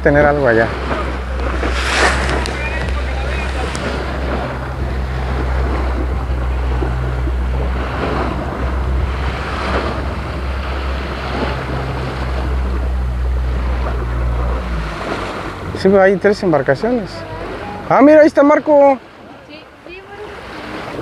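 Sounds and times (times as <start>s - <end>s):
wind on microphone: 0.0s - 16.0s
outboard motor humming: 0.0s - 21.0s
water rushing along hull: 0.0s - 21.0s.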